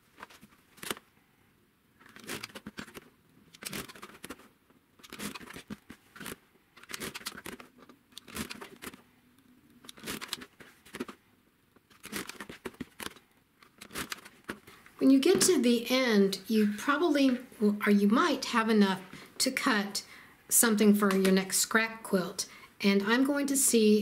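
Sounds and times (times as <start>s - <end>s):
rotary cutter slicing fabric: 2.0s - 4.4s, 8.2s - 9.0s, 9.8s - 11.1s, 11.9s - 13.1s, 13.8s - 14.4s.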